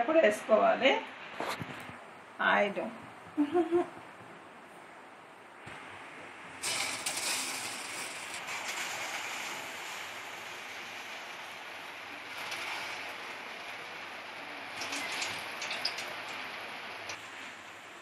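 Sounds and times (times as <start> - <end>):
dough deep-frying in hot oil: 5.4 - 18.0
oil crackles and pops: 6.6 - 17.2.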